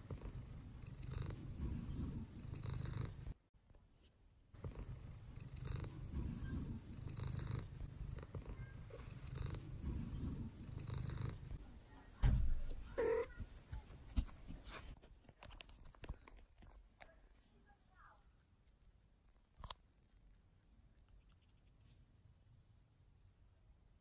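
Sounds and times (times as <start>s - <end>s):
cat purring: 0.0s - 3.4s, 4.5s - 14.1s
thump: 12.2s - 12.8s.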